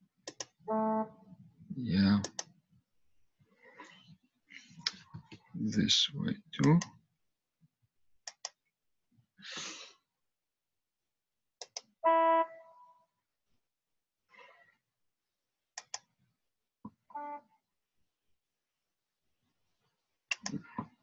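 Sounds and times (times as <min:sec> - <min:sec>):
computer mouse double-clicks: 0:00.2 - 0:00.6, 0:15.8 - 0:16.1.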